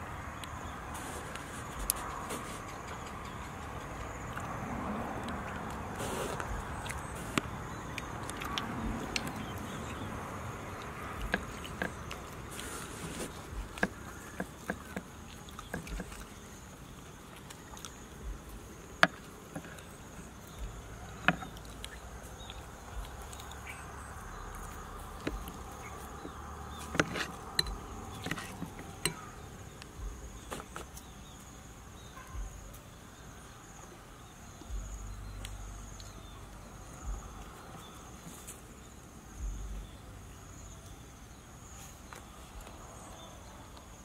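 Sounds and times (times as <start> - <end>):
high insect drone: 0.0 - 44.0
cutlery scraping plastic plate: 26.8 - 29.2.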